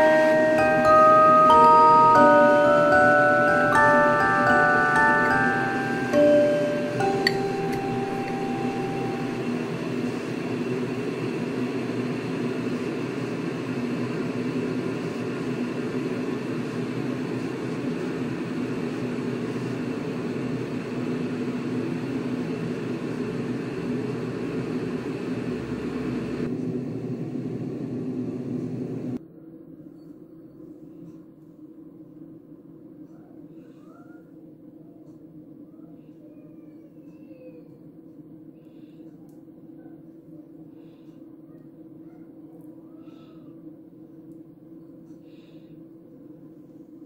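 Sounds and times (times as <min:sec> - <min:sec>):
machine humming: 0:00.0 - 0:29.2.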